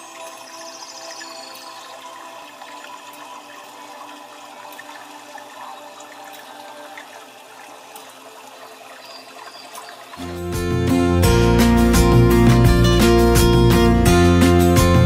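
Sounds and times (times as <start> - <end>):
water fountain trickling: 0.0 - 10.6.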